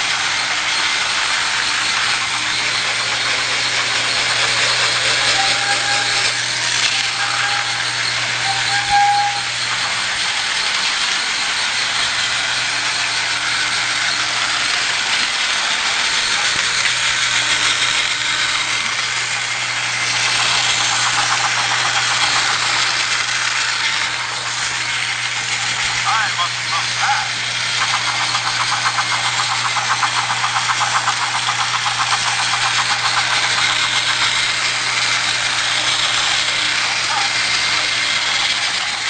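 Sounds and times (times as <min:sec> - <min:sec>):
toy train motor whirring: 0:00.0 - 0:39.0
short high squeaks: 0:01.7 - 0:12.2.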